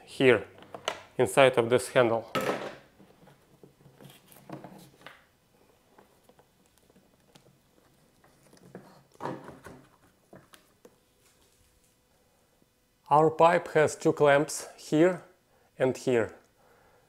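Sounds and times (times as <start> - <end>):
soft scrapes and rustles: 5.6 - 12.0.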